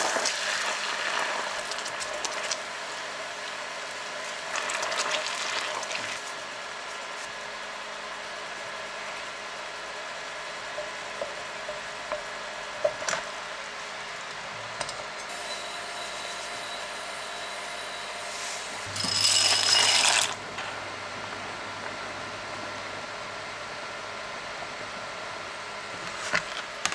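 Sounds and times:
dry pasta rattling into saucepan: 18.9s - 20.4s.

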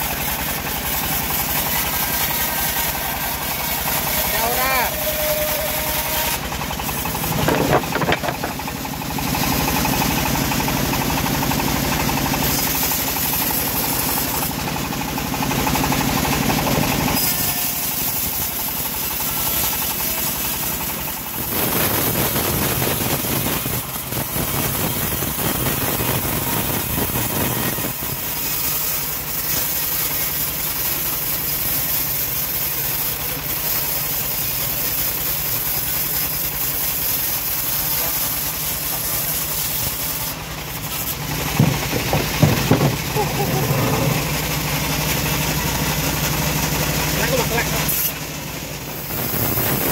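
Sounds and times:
band sawmill sawing log: 0.0s - 49.9s.

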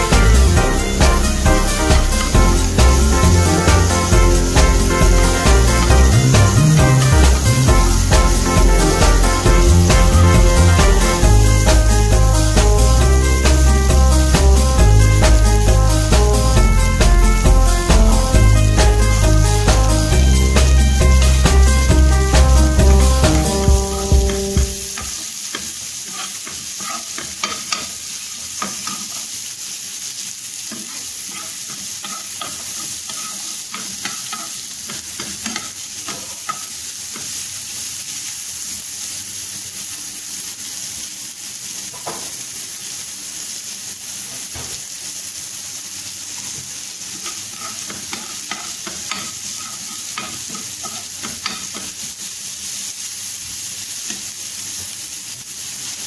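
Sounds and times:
onion sizzling in oil: 0.0s - 56.0s
metal spoon scraping pan: 26.0s - 28.0s, 30.7s - 34.6s, 47.2s - 51.8s.

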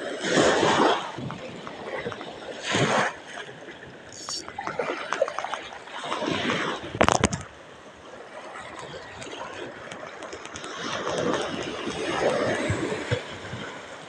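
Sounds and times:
small waves lapping on beach: 0.0s - 14.0s.

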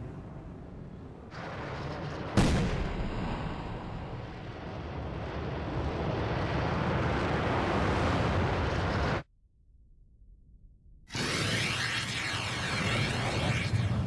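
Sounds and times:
rocket engine rumble: 0.0s - 9.3s.

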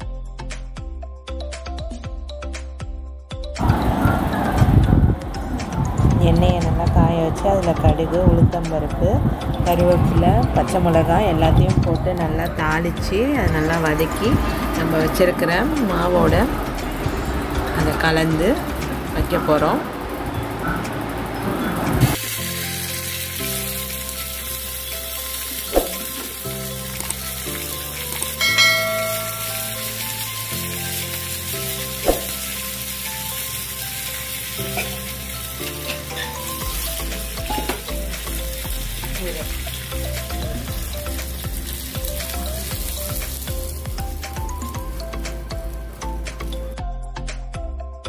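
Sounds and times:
spices sizzling in hot oil: 21.3s - 46.8s
metal pan clinks: 28.4s - 30.1s.

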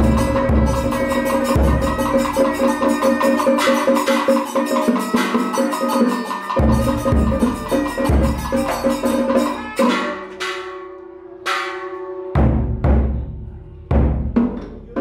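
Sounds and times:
deep drum beats: 0.0s - 3.0s, 6.6s - 10.7s, 12.4s - 15.0s
wood-block clacking: 0.0s - 12.5s.

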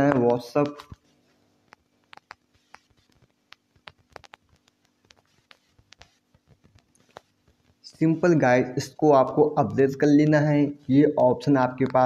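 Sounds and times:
fingertips typing on phone screen: 2.1s - 7.7s.

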